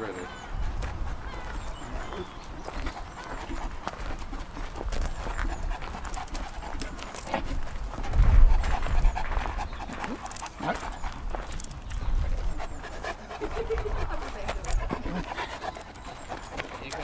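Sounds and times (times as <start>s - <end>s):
dog panting: 0.0s - 17.0s
footsteps on gravel: 0.8s - 12.2s.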